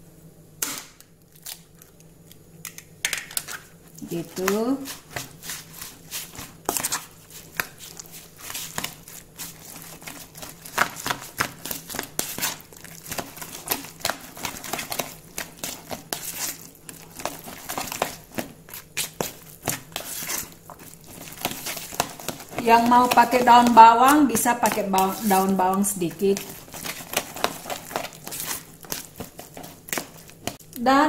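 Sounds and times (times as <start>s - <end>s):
wet squish of mixture: 1.2s - 30.8s
metal spoon scraping bowl: 21.6s - 28.6s.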